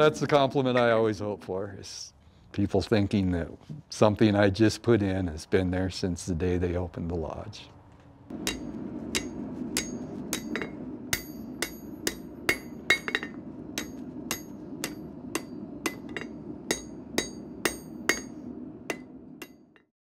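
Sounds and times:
low rumble: 0:08.3 - 0:19.8
hammer striking iron on anvil: 0:08.3 - 0:19.9.

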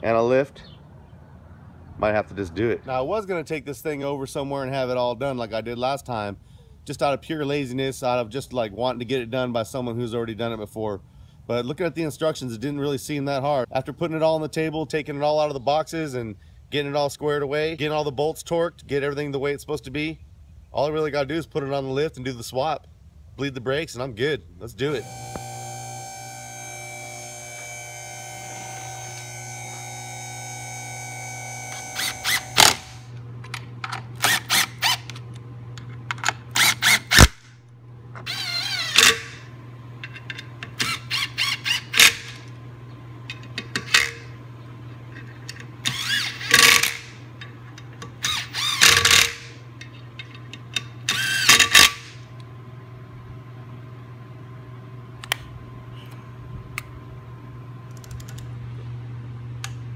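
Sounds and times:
steady low hum: 0:00.0 - 0:59.9
power driver bursts: 0:24.9 - 0:33.2, 0:34.1 - 0:35.2, 0:36.4 - 0:37.6, 0:38.2 - 0:39.5, 0:45.8 - 0:47.2, 0:48.2 - 0:49.6.

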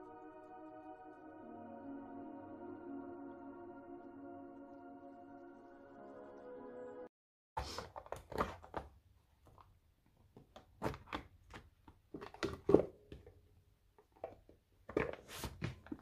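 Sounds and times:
soft ambient music: 0:00.0 - 0:07.1.

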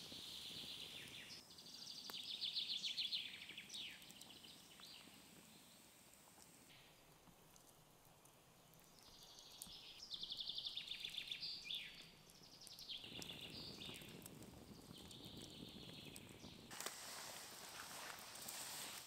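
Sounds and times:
broad rustling hiss: 0:00.0 - 0:01.4, 0:16.6 - 0:19.0.

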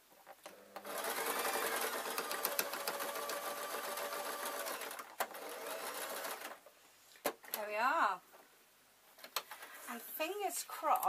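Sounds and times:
sewing machine running: 0:00.8 - 0:06.6.

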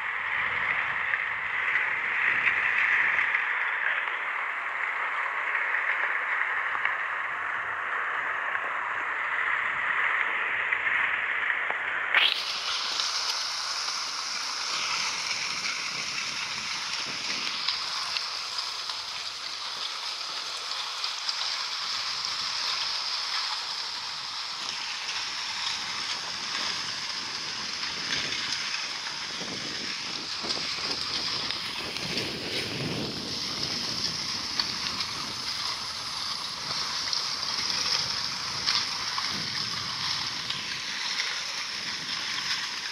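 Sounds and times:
ice and water sloshing on hull: 0:12.2 - 0:42.9.

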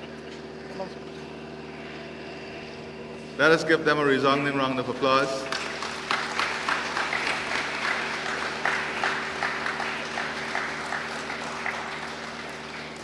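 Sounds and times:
audience applauding: 0:05.4 - 0:13.0.

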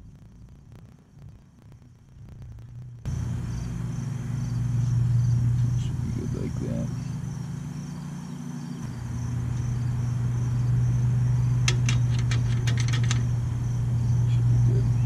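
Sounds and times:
steady low hum: 0:00.0 - 0:15.0
high insect chirp: 0:03.0 - 0:15.0
sharp clicks: 0:11.6 - 0:13.3.

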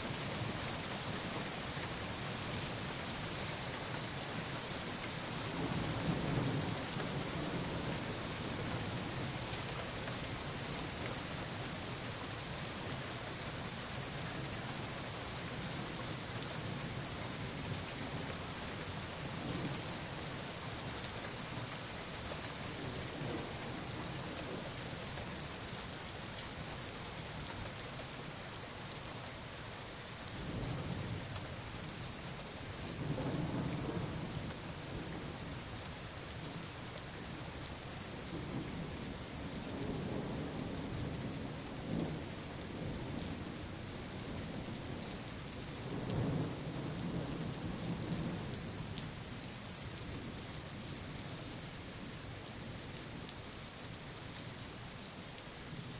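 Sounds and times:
low rolls of thunder: 0:32.9 - 0:35.4, 0:38.3 - 0:43.6, 0:45.8 - 0:48.8.

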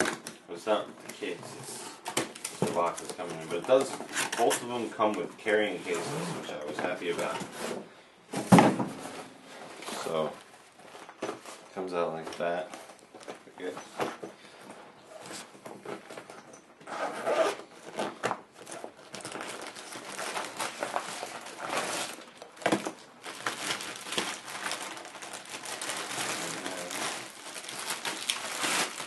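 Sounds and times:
plastic packaging crinkling: 0:17.8 - 0:29.0.

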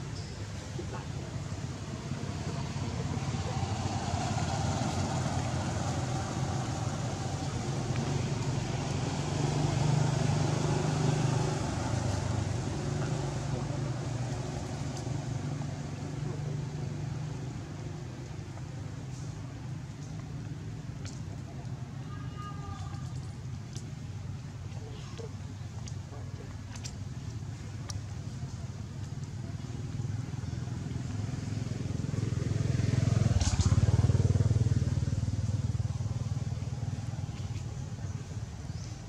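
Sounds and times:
vehicle engine passing: 0:00.8 - 0:21.9, 0:29.4 - 0:38.9.

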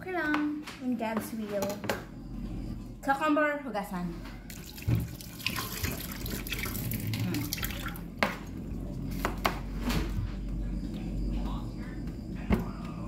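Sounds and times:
water running from a tap: 0:04.5 - 0:08.1.

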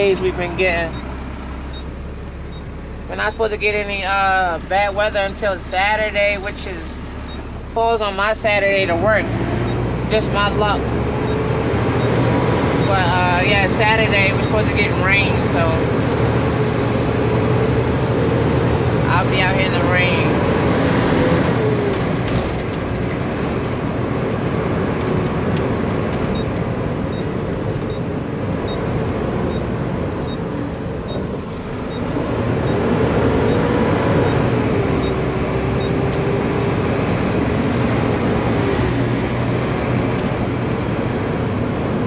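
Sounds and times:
diesel truck engine running: 0:00.0 - 0:42.0.

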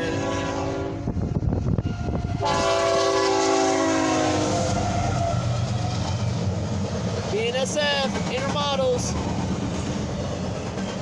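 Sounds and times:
locomotive air horn: 0:00.0 - 0:01.1, 0:01.8 - 0:05.4
train rumbling over rails: 0:00.0 - 0:11.0.

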